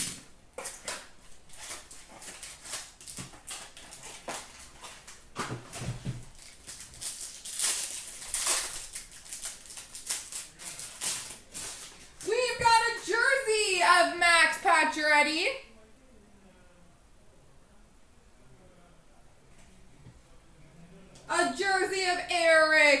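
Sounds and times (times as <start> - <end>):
wrapper crinkling and rustling: 0.0 - 12.3.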